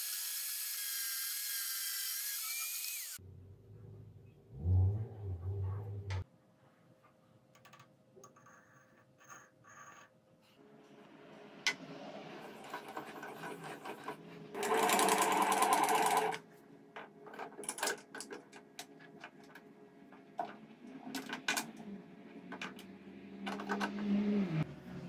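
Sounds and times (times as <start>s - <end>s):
metal parts clicking and knocking: 17.3s - 19.4s.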